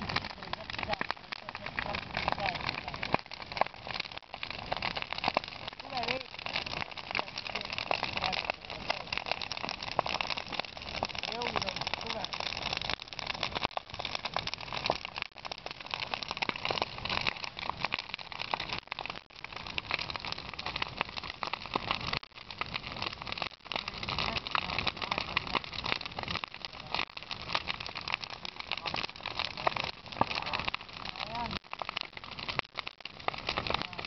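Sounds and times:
bonfire crackling and popping: 0.0 - 34.0.

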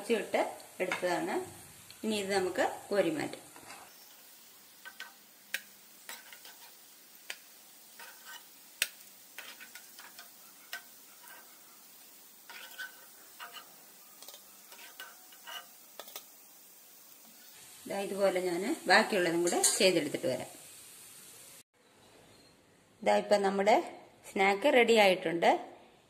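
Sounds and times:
hot oil sizzling faintly: 0.0 - 21.7.

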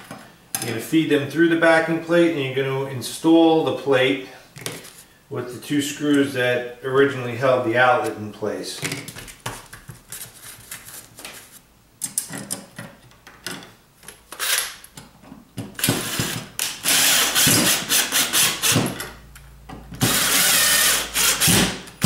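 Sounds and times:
cordless drill driving screws: 14.4 - 14.8, 15.8 - 19.0, 20.0 - 21.8.

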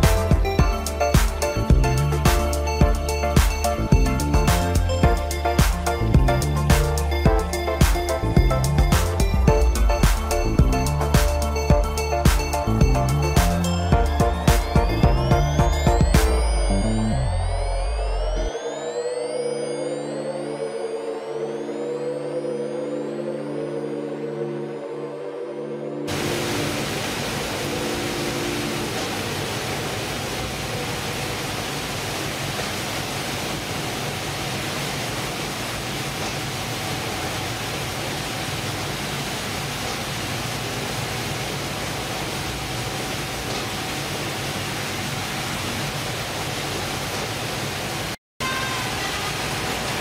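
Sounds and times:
running water: 0.0 - 19.0, 26.1 - 50.0
processing machinery rushing: 26.1 - 48.0.

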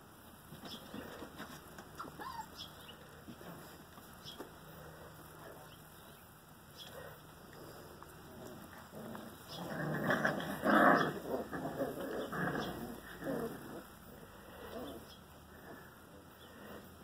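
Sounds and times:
puppies growling and yelping: 2.0 - 3.7, 7.0 - 16.9.

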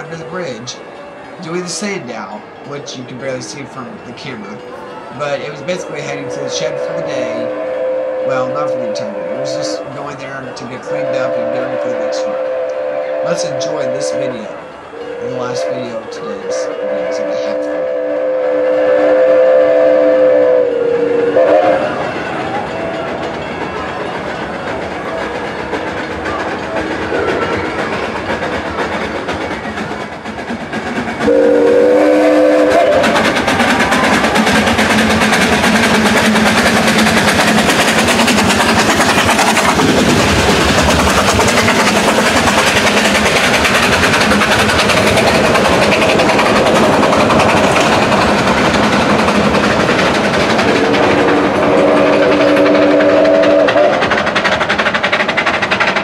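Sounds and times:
train wheels clattering: 0.0 - 56.0
train whistle blasts: 4.5 - 23.2, 31.2 - 37.0, 50.6 - 54.1.

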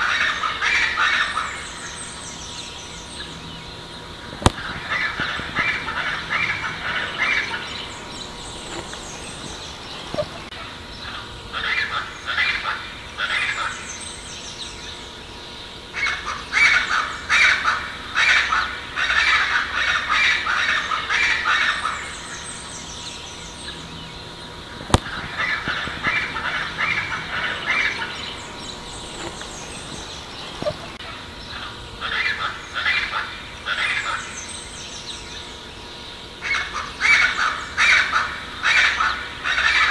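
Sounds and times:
birds giving harsh raspy calls: 0.0 - 39.9.

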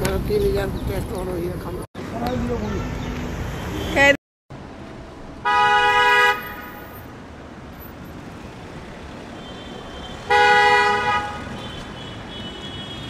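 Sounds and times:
street traffic noise: 0.0 - 13.0
car horn honking: 5.4 - 7.0, 9.4 - 13.0.

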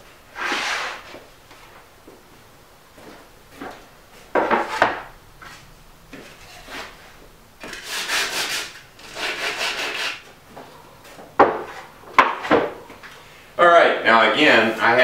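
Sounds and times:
sanding block rubbing wood: 7.6 - 10.3
wooden panel knocks: 11.4 - 12.8.

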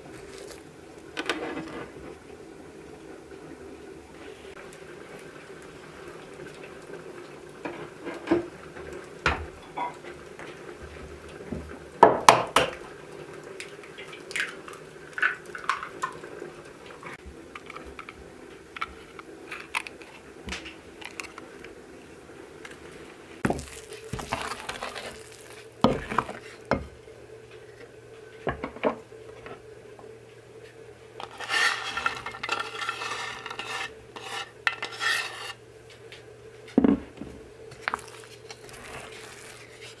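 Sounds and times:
wooden spoon stirring batter: 23.4 - 26.9, 31.2 - 35.6, 37.7 - 40.0.

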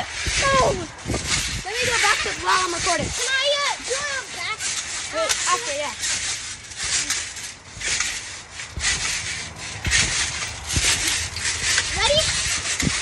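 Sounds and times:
rhythmic trampoline swishes: 0.0 - 13.0
dull thumps on trampoline mat: 2.2 - 13.0.

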